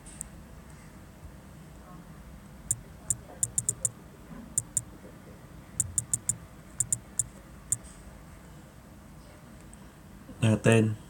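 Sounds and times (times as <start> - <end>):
phone keyboard key clicks: 2.7 - 3.9, 4.6 - 4.9, 5.8 - 7.3.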